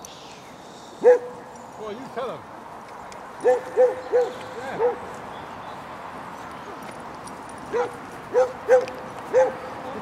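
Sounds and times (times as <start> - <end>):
dog barking: 1.0 - 1.4, 3.4 - 5.0, 7.7 - 9.6.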